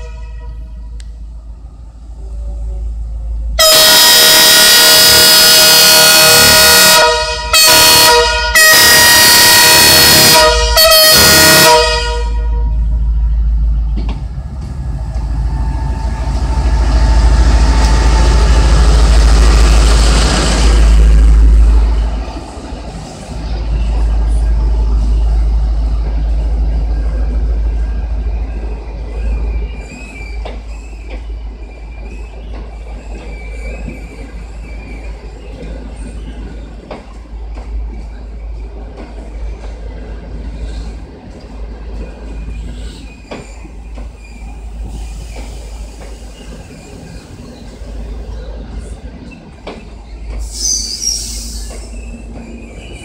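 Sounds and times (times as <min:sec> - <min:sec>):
locomotive horn blasts: 0:00.0 - 0:00.8, 0:03.6 - 0:12.8
train rumbling past: 0:00.0 - 0:53.0
high squealing of train brakes: 0:15.0 - 0:38.8, 0:41.9 - 0:53.0.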